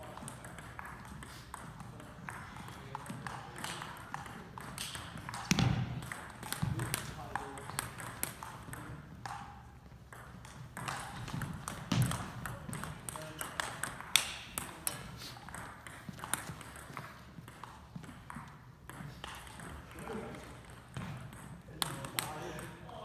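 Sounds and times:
table tennis ball clicks: 10.1 - 19.8.

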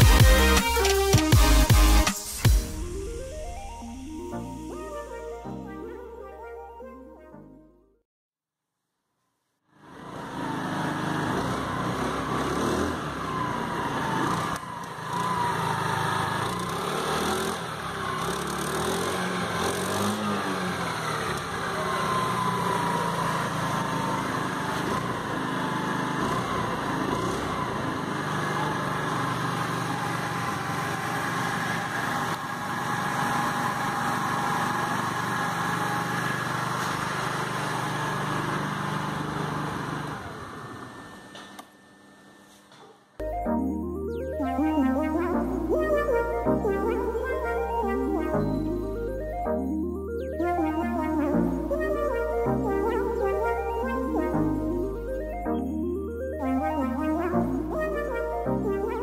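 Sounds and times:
scooter engine idling: 10.0 - 40.9.

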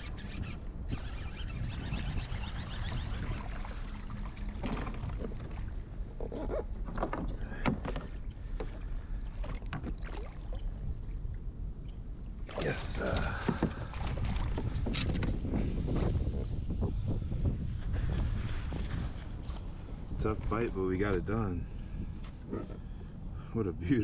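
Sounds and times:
water movement: 0.0 - 15.2.

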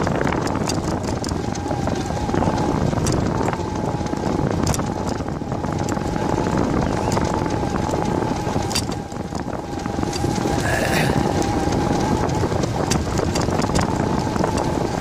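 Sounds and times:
bicycle wheels rolling: 0.0 - 15.0
bike clicks and rattles: 0.0 - 15.0
wind on microphone: 0.0 - 15.0
steady hum: 6.3 - 12.6.

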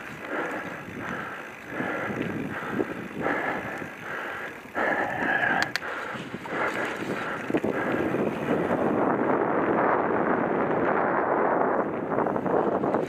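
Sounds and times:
bike rattling: 0.0 - 13.0
bike tyres on dirt trail: 0.0 - 13.0
sharp clicks: 5.2 - 6.0.

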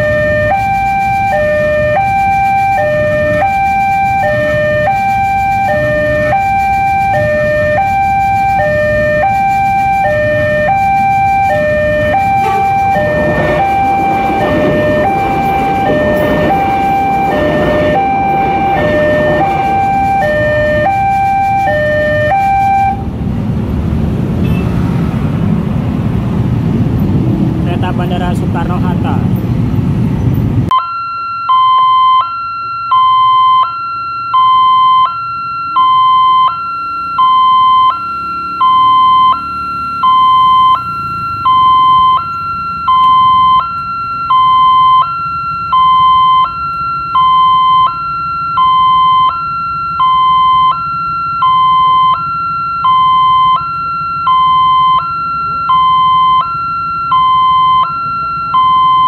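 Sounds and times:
two-tone crossing warning alarm: 0.0 - 23.2, 30.7 - 59.0
low rumble: 12.0 - 20.9.

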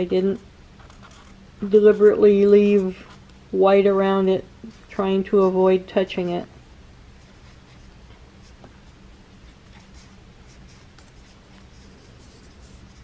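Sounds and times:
pencil scratching on paper: 9.3 - 13.0.

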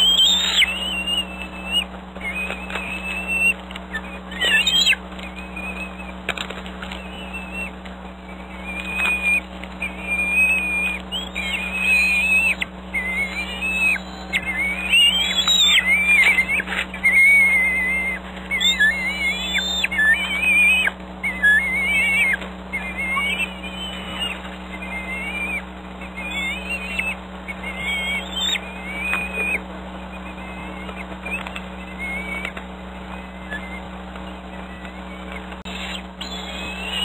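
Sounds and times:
eagle chicks whistled begging calls: 0.0 - 37.0
steady low hum: 0.0 - 37.0.

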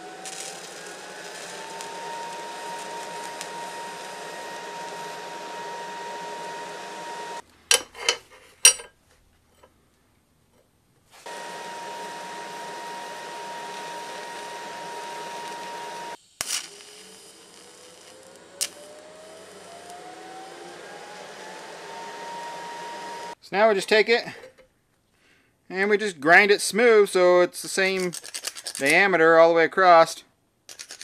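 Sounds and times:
welding arc hissing and whining: 0.0 - 7.4, 11.2 - 23.4.

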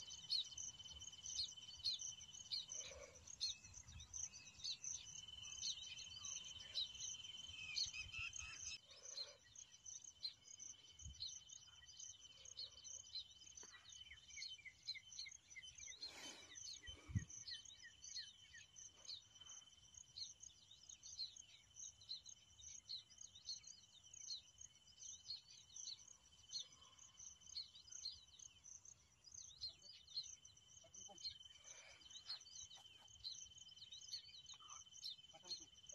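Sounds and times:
bird high chirps: 0.0 - 8.8.

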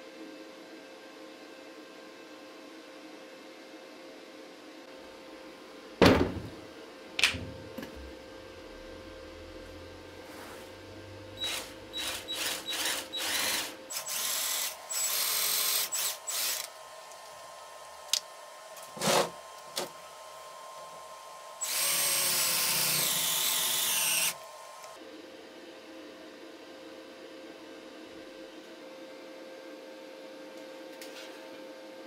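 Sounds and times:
cordless drill running: 11.4 - 16.8, 21.6 - 25.0.

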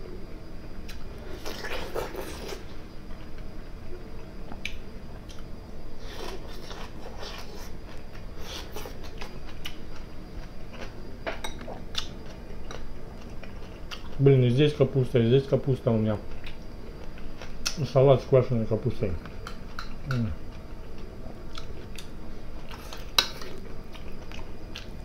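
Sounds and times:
man biting and chewing food: 0.8 - 2.8, 4.5 - 11.0.

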